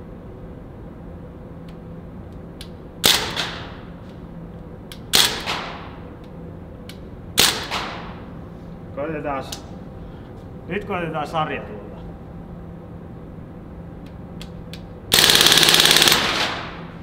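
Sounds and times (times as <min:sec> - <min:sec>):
air rifle shots: 0:15.1 - 0:16.9.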